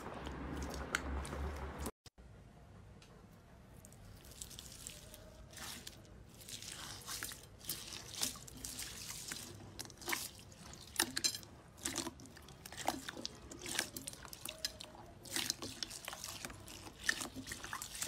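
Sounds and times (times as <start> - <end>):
slime squelching by hand: 0.0 - 1.9, 3.7 - 18.0.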